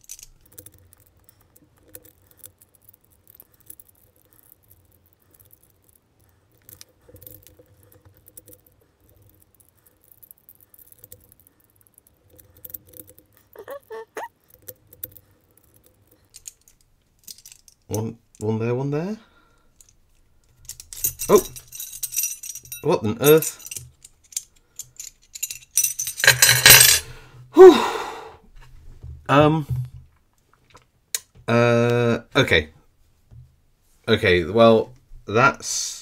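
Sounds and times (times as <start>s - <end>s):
metal puzzle pieces clicking: 0.0s - 18.5s, 19.8s - 27.1s.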